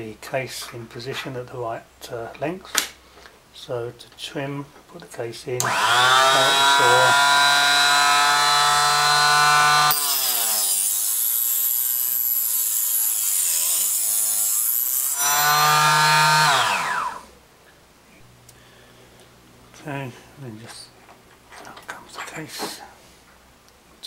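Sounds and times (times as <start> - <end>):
mini chop saw motor whine: 5.6 - 17.3
saw grinding through brass: 5.7 - 17.2.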